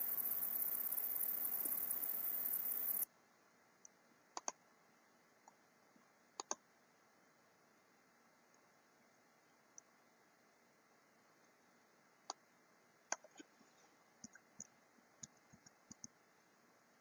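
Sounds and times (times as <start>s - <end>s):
steady hiss: 0.0s - 3.1s
computer mouse clicks: 4.4s - 4.6s, 6.4s - 6.6s, 13.1s - 13.5s, 14.2s - 16.2s.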